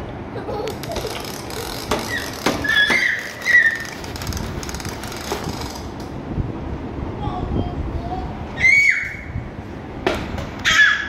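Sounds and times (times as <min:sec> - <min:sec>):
short high squeaks: 0:00.8 - 0:05.9.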